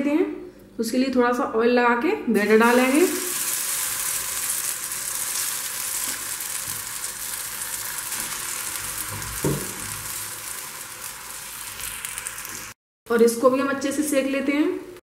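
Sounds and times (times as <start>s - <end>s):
batter sizzling in hot oil: 2.4s - 12.8s.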